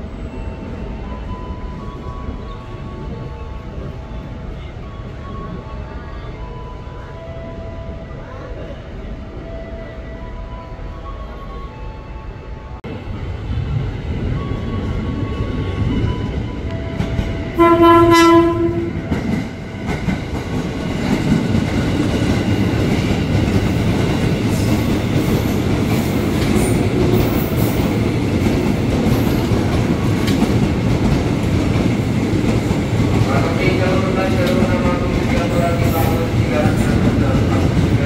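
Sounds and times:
train wheels rumbling: 0:12.8 - 0:38.0
train horn: 0:17.5 - 0:19.2.

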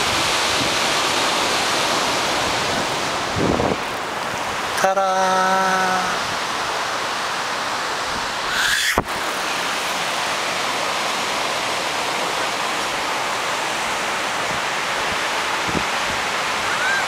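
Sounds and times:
ocean surf breaking on beach: 0:00.0 - 0:17.0
rising swish: 0:08.5 - 0:09.1.

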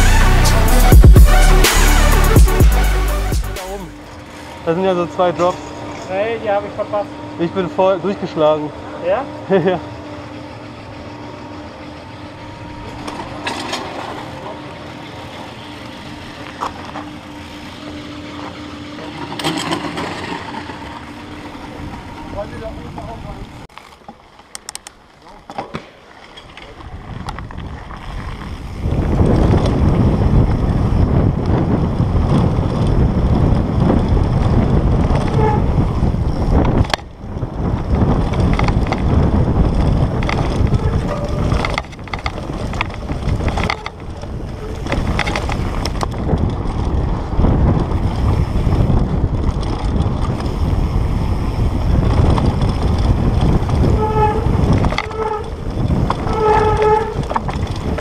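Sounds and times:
mountain bike rumble and rattle: 0:00.0 - 0:58.0
wind buffeting microphone: 0:26.7 - 0:58.0
short squeals: 0:56.2 - 0:57.4.

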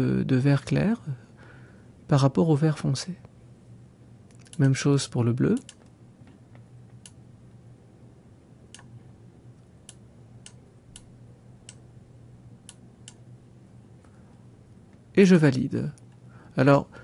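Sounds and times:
low steady hum: 0:00.0 - 0:17.0
computer mouse clicking: 0:08.7 - 0:08.9, 0:09.8 - 0:11.8, 0:12.6 - 0:13.2.

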